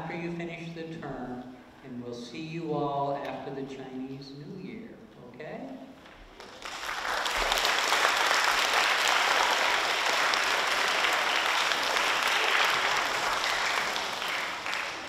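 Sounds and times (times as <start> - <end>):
children applauding: 6.4 - 15.0.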